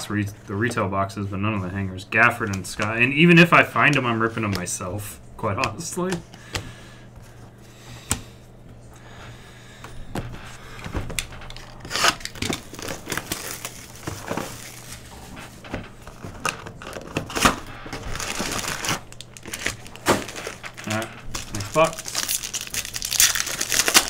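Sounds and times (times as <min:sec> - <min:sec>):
plastic wrap tearing and crinkling: 0:11.2 - 0:24.0.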